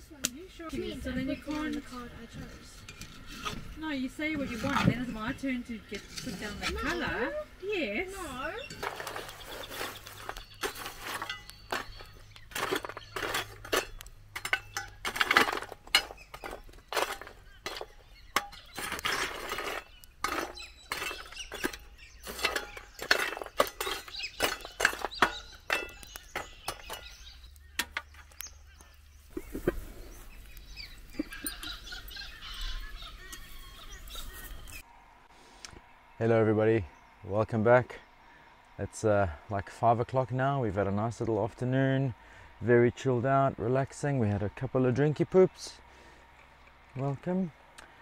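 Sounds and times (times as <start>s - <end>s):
coals crunching and clinking: 0.0s - 34.8s, 43.7s - 48.0s
shovel scraping charcoal embers: 0.2s - 34.8s.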